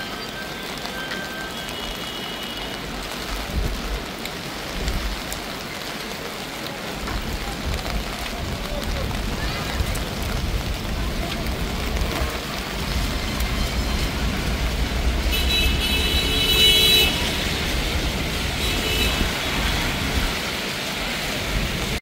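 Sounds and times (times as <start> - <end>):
traffic on wet roads: 0.0 - 22.0
car horn: 15.3 - 17.7, 18.6 - 20.1.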